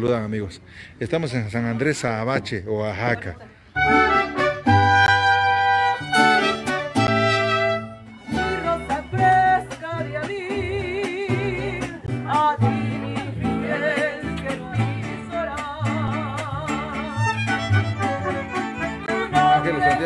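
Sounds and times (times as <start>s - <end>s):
guitar rhythm: 3.1s - 20.0s
violin melody with vibrato: 3.8s - 10.3s, 16.6s - 20.0s.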